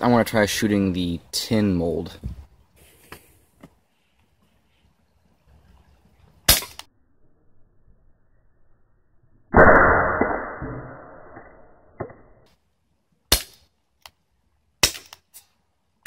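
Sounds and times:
bb pistol shots: 6.5 - 6.9, 14.8 - 15.2.

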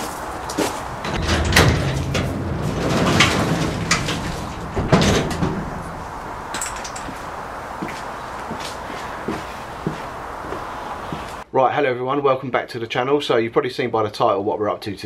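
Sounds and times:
garage door rattling open: 0.6 - 8.3
metal door clunk: 0.8 - 7.8.

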